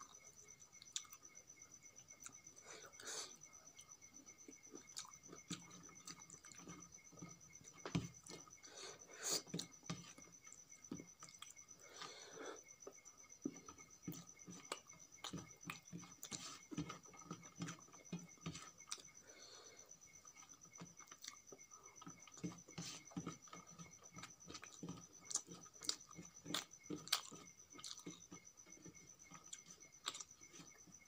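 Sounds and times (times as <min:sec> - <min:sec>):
faint high whine: 0:00.0 - 0:31.0
wet chewing and lip smacks: 0:24.2 - 0:28.2.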